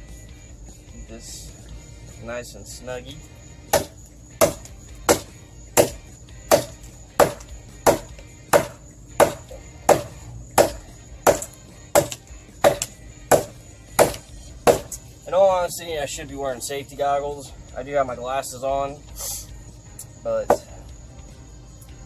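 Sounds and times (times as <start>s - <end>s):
hatchet chopping wood: 3.7s - 15.0s, 20.5s - 20.8s.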